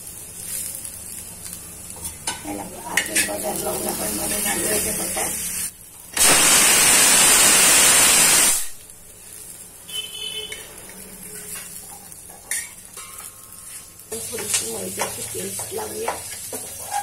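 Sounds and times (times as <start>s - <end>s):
loud steady hiss: 4.6s - 8.9s.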